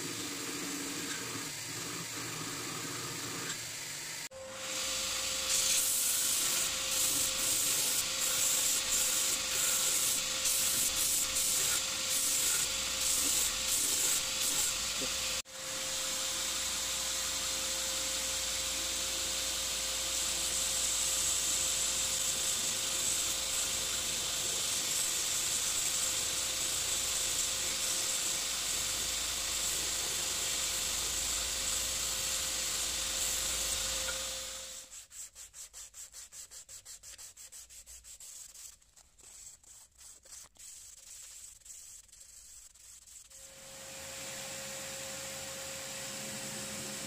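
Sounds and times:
blade sanded by hand: 0:04.6 - 0:16.3, 0:18.0 - 0:43.8.

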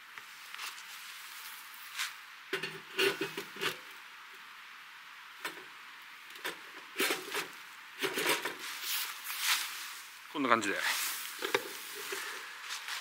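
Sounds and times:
metal bowl knocking and scraping: 0:02.6 - 0:03.8.

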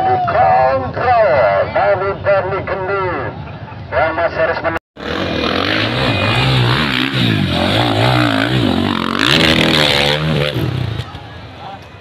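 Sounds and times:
dirt bike engine revving: 0:05.0 - 0:11.2.

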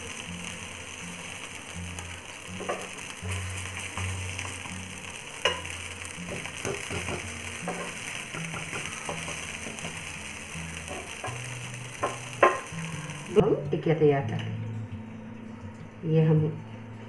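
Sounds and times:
food sizzling in oil: 0:00.0 - 0:13.5.

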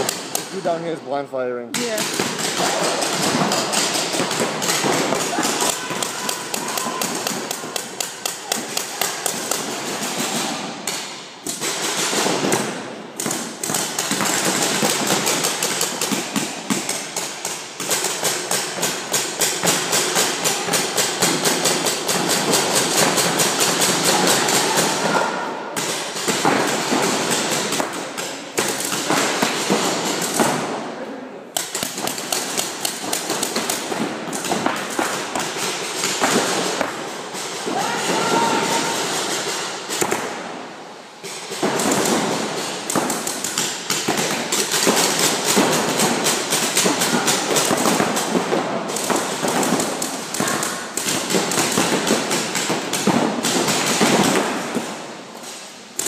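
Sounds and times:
paintball markers firing: 0:01.7 - 0:25.2, 0:25.8 - 0:30.8, 0:31.5 - 0:40.6, 0:41.2 - 0:56.0
paintballs hitting inflatable bunkers: 0:01.7 - 0:56.0.

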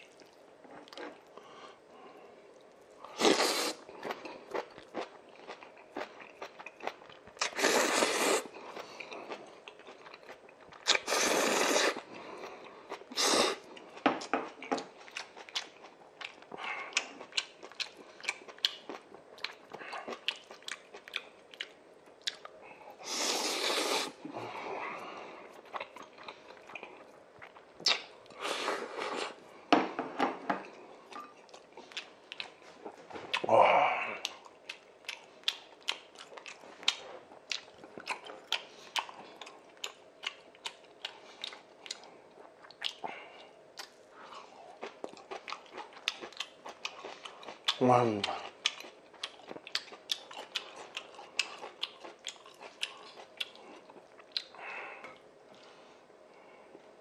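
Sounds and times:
wet chewing with mouth clicks: 0:02.6 - 0:24.1, 0:25.5 - 0:29.4, 0:30.6 - 0:33.5, 0:34.2 - 0:55.7
noodle slurping: 0:07.4 - 0:08.5, 0:10.9 - 0:12.1.

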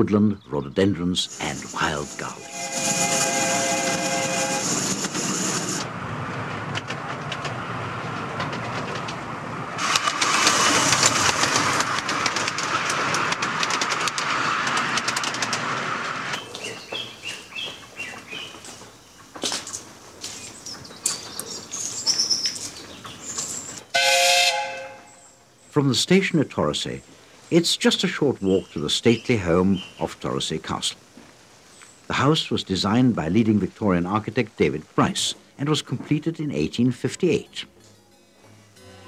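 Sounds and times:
birds chirping: 0:00.0 - 0:03.4, 0:16.4 - 0:19.4, 0:20.2 - 0:23.9, 0:24.9 - 0:31.0
steam train rushing hiss: 0:01.2 - 0:05.9, 0:09.8 - 0:16.4
steam train chime whistle: 0:01.6 - 0:05.0, 0:23.9 - 0:25.3.

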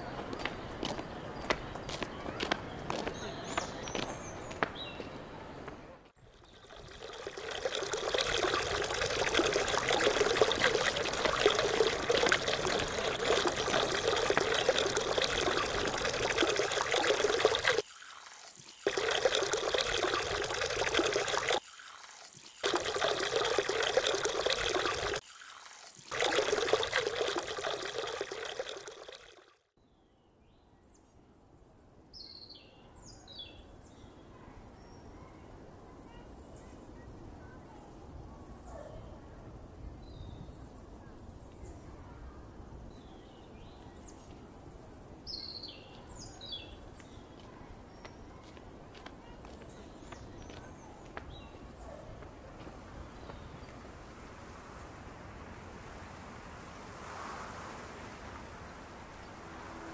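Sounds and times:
water splashing from fountain: 0:06.2 - 0:29.6.

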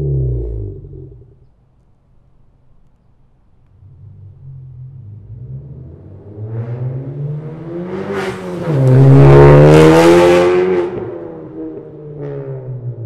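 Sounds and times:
car accelerating hard driving by: 0:03.8 - 0:12.8.

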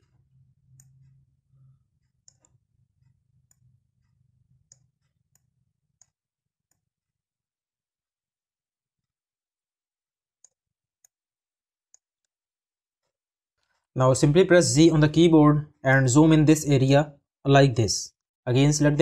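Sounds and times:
computer mouse clicks: 0:00.7 - 0:01.2, 0:02.0 - 0:06.9.

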